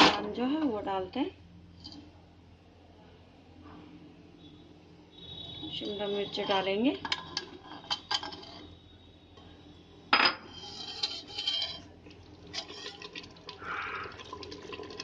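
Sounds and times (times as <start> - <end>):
metal spatula scraping pot: 6.2 - 8.7, 10.4 - 13.3.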